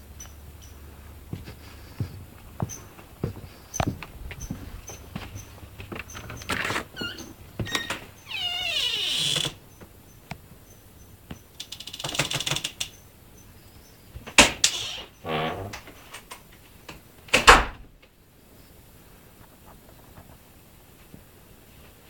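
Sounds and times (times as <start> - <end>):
short falling creak: 6.0 - 9.6, 14.6 - 16.2
rapid clatter of clicks: 11.6 - 13.0.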